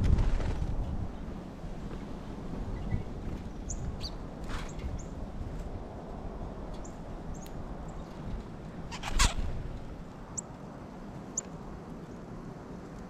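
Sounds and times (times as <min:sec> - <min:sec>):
wind rumbling on microphone: 0:00.0 - 0:13.0
small birds chirping: 0:02.7 - 0:05.3, 0:06.7 - 0:10.5.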